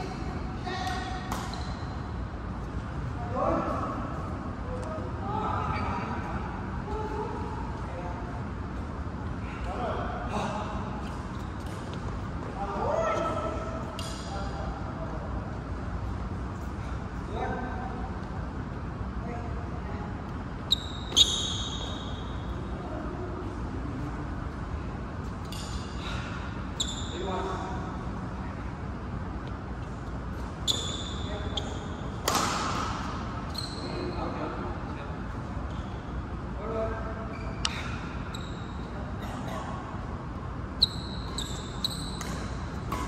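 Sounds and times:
shoes squeaking on court floor: 0.6s - 2.8s, 20.5s - 22.7s, 25.2s - 27.7s, 29.8s - 34.6s, 35.5s - 36.2s, 37.3s - 39.8s, 40.7s - 43.0s
racket striking shuttlecock: 0.8s - 1.6s, 32.2s - 33.1s, 42.1s - 43.0s.

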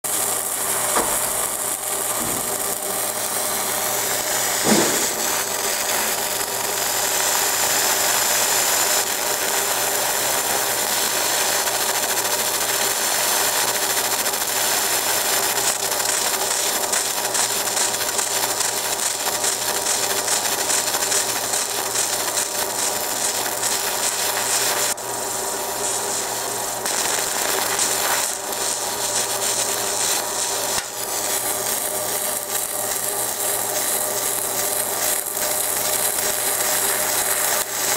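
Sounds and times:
laser engraver buzzing hiss: 0.0s - 37.9s.

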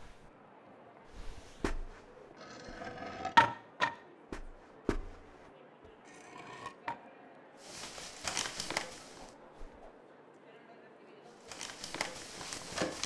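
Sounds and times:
wood scraping and creaking: 1.2s - 3.6s.

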